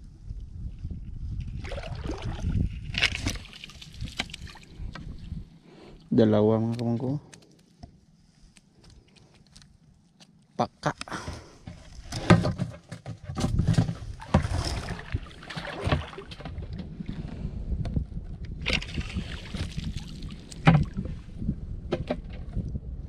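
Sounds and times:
shallow water splashing: 1.6 - 6.1, 14.0 - 17.3, 18.7 - 21.3.

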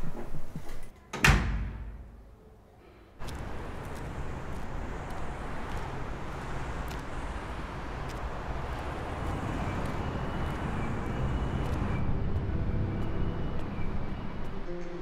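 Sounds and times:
entrance door slamming shut: 1.1 - 2.2
passing cars: 3.2 - 14.9.

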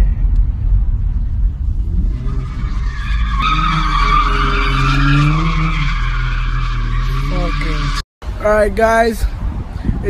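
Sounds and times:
low road rumble: 0.0 - 10.0
high squeal: 2.2 - 8.0.

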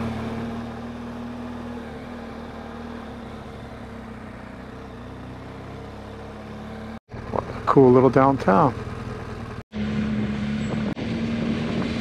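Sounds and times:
motorcycle engine idling: 7.1 - 9.6.

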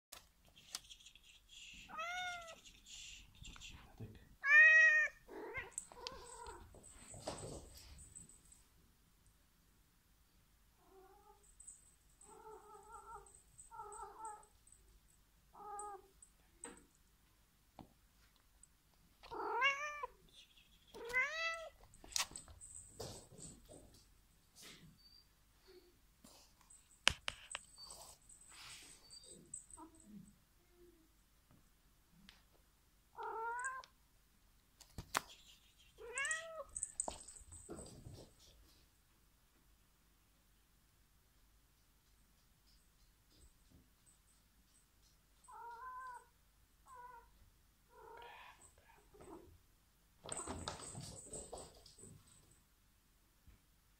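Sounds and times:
cat meowing: 1.9 - 2.6, 4.4 - 6.6, 19.3 - 20.2, 21.0 - 21.8, 33.2 - 33.9, 45.5 - 46.3.

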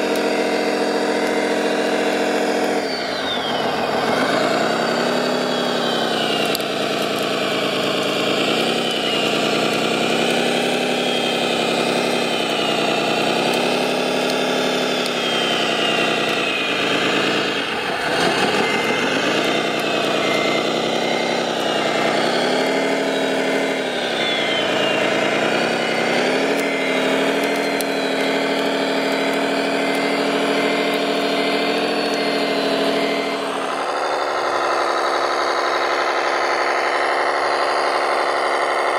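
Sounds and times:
model bulldozer engine: 0.0 - 38.9
high beeps: 18.0 - 28.5.

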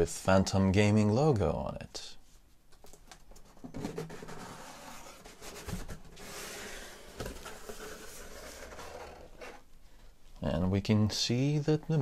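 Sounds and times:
cardboard lid scraping: 3.6 - 9.7.

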